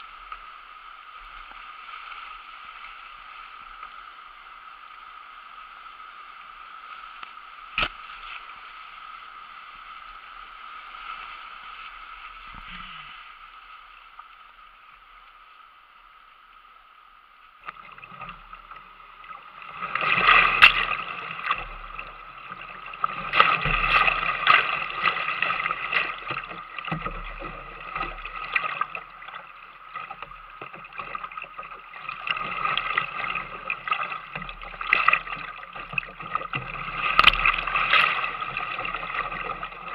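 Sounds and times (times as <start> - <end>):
water splashing against hull: 17.6 - 39.9.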